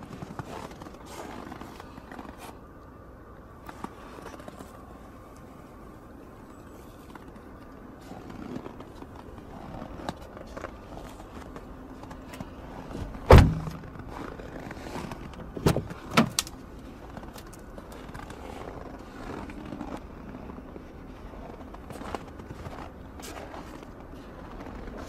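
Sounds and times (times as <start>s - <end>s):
car door shutting thump: 13.0s - 13.8s
sharp knocks: 13.3s - 13.9s.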